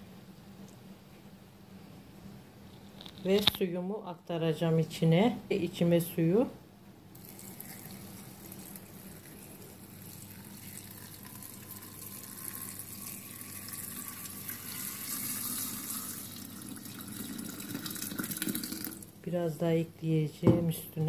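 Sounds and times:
water pouring into glass jar: 7.1 - 19.1.

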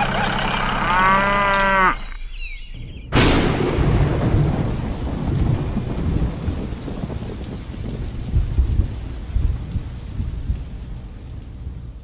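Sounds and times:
thunderclap: 2.8 - 11.8
rolling thunder rumble: 2.8 - 12.0
heavy rain: 3.2 - 12.0.

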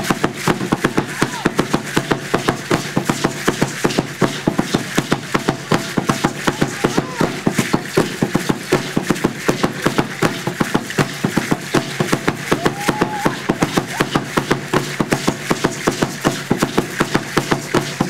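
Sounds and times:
large drum beaten fast: 0.0 - 18.0
ankle seed-pod rattles shaking: 13.3 - 18.0.

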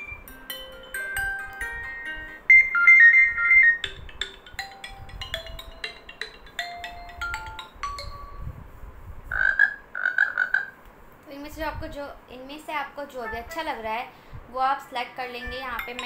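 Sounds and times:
electronic ringtone melodies: 0.0 - 8.6, 13.3 - 13.8, 15.4 - 16.0
frog croaking sound: 9.3 - 10.8.

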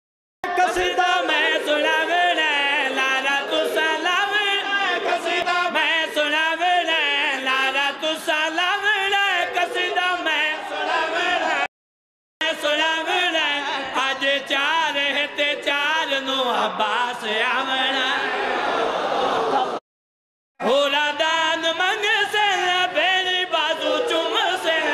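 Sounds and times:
man chanting unaccompanied: 20.6 - 24.9.

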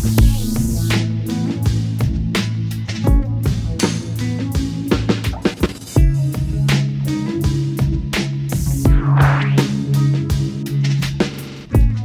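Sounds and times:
instrumental music with steady beat: 0.0 - 12.0
hissing swell: 8.9 - 9.8.

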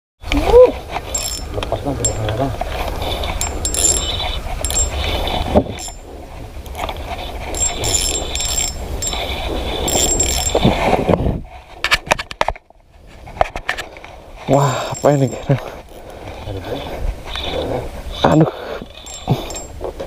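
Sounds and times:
spinning reel ratcheting and whirring: 1.1 - 2.2, 3.1 - 6.1, 7.4 - 10.8, 18.8 - 19.8.

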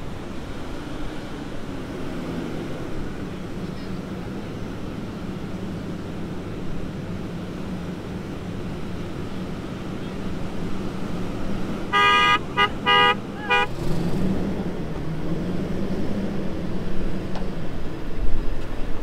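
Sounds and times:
truck engine running: 0.0 - 18.2
vehicle horn toots: 11.9 - 13.9.

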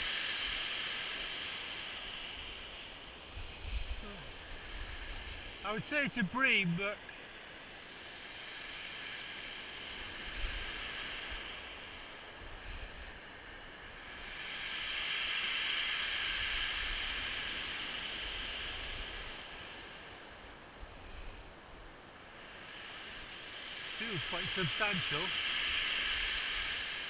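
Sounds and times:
wind rumbling on microphone: 0.0 - 27.0.

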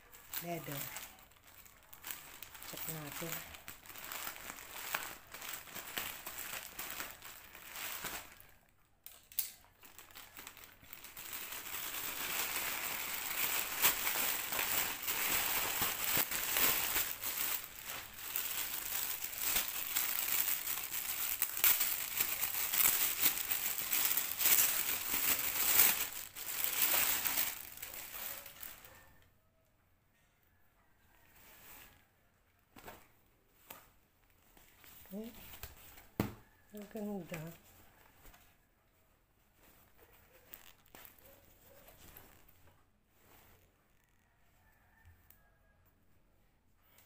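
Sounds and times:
plastic packaging crinkling: 0.1 - 29.0, 39.7 - 42.6.

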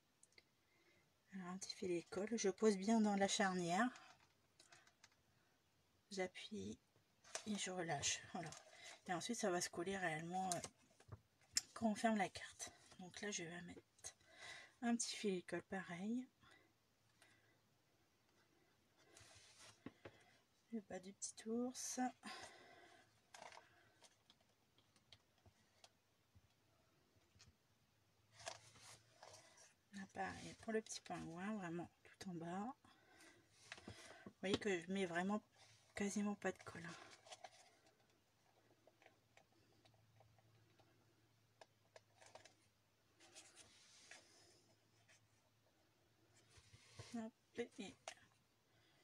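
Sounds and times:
soft paper rustle: 7.2 - 9.5, 18.5 - 20.4, 22.3 - 26.0, 28.3 - 31.3, 35.3 - 41.0, 41.6 - 45.4, 46.2 - 48.4.

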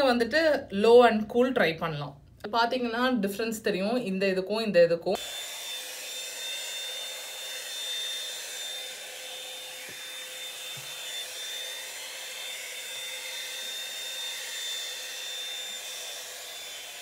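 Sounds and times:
hot air brush blowing: 5.2 - 17.0.

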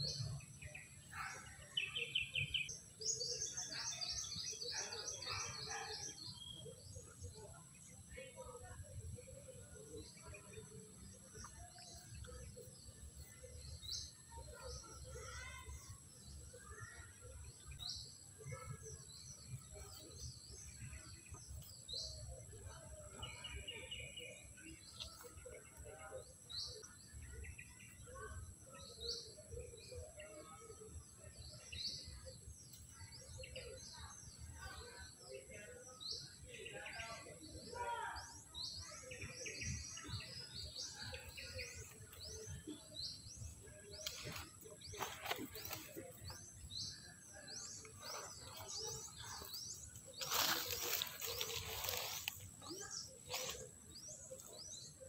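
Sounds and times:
birds chirping: 0.0 - 55.0
birds calling: 37.8 - 55.0.

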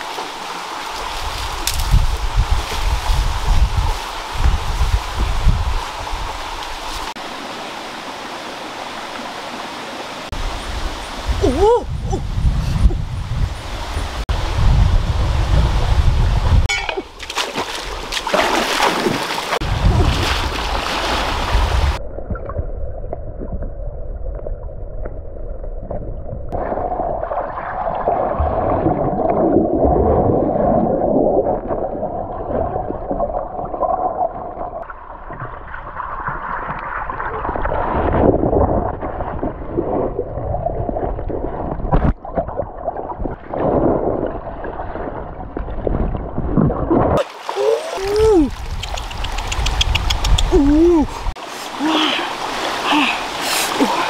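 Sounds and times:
river water splashing: 0.0 - 11.4, 16.7 - 22.0, 47.2 - 54.0
underwater gurgling: 21.9 - 50.5.

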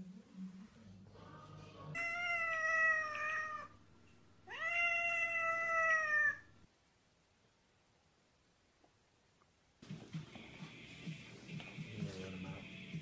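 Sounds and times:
cat meowing: 2.0 - 3.8, 4.4 - 6.6.

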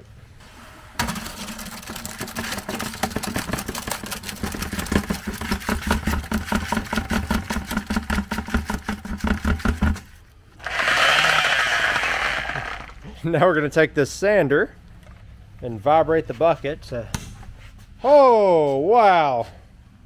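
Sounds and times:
wet concrete pouring into bucket: 1.0 - 10.0.

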